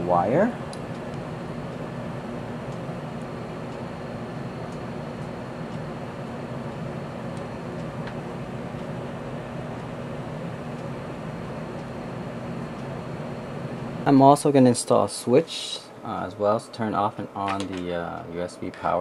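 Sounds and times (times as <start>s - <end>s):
machinery hum and hiss: 0.0s - 19.0s.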